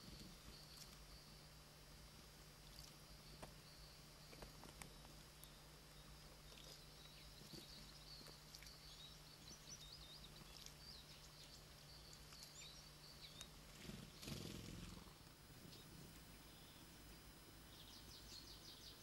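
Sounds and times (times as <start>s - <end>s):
steady low hum: 0.0s - 19.0s
distant songbird warbling: 2.7s - 19.0s
noisy rustle: 13.5s - 17.5s.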